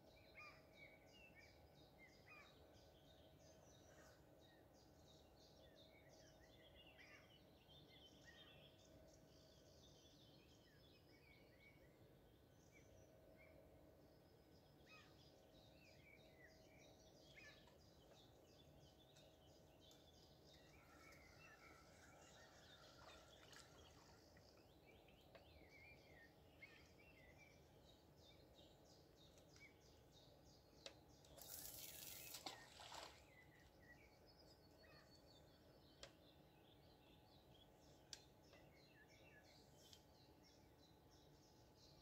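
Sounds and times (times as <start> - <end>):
small birds chirping: 14.4 - 42.0.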